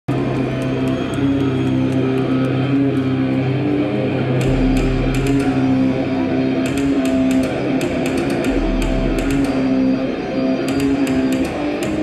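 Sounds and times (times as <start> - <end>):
deep bass note: 4.4 - 6.1.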